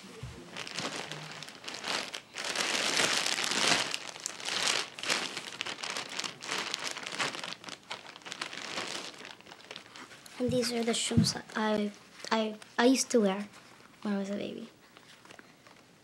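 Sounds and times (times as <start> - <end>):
plastic bag crinkling: 0.4 - 12.4.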